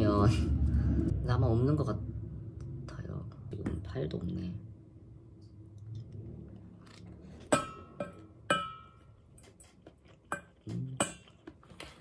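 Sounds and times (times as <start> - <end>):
metal spoon clinking against bowl: 7.5 - 9.0.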